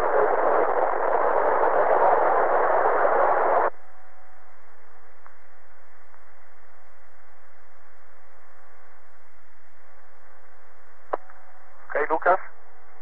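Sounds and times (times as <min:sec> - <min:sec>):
radio static hiss: 0:00.0 - 0:03.8, 0:04.5 - 0:13.0
faint steady tones: 0:00.0 - 0:13.0.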